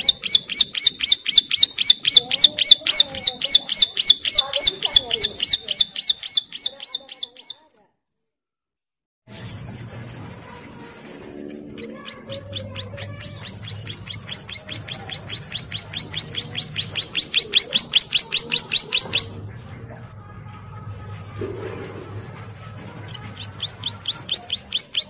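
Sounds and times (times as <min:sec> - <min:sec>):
bird chirps: 0:00.0 - 0:07.6, 0:09.4 - 0:19.4, 0:23.1 - 0:25.0
bird rapid high call: 0:00.0 - 0:07.6, 0:11.8 - 0:19.4, 0:23.2 - 0:25.0.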